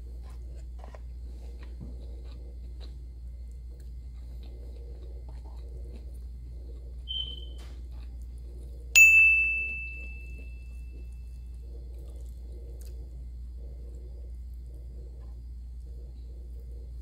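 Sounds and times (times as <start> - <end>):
bright bell ding: 9.0 - 10.7.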